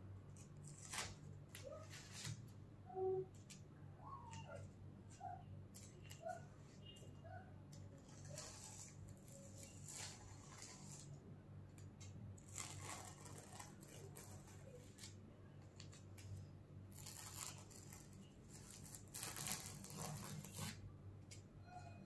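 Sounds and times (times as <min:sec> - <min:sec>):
masking tape peeling: 0:00.6 - 0:02.4, 0:08.0 - 0:11.2, 0:12.4 - 0:15.2, 0:15.8 - 0:20.8.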